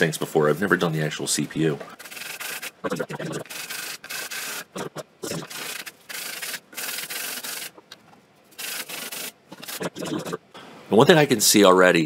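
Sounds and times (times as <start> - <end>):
metal rasping on sandpaper: 2.0 - 2.8, 3.4 - 4.7, 5.5 - 7.7, 8.5 - 9.9.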